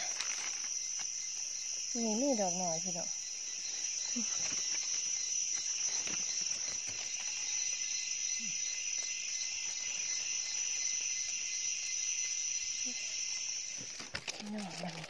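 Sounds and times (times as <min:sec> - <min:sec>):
forest insects droning: 0:00.0 - 0:15.0
faint rustling clicks: 0:13.8 - 0:15.0.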